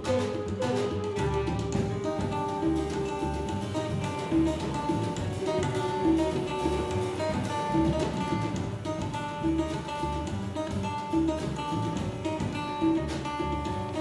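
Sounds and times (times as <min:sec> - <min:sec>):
transverse flute: 0:00.0 - 0:08.3
acoustic guitar: 0:00.0 - 0:14.0
double bass: 0:00.0 - 0:14.0
drum kit: 0:00.0 - 0:14.0.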